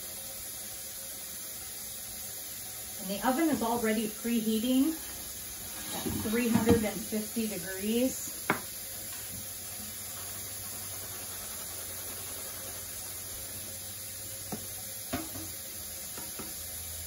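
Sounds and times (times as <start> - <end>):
low kitchen hiss: 0.0 - 17.0
kitchenware knocks: 6.0 - 6.9, 15.1 - 15.5.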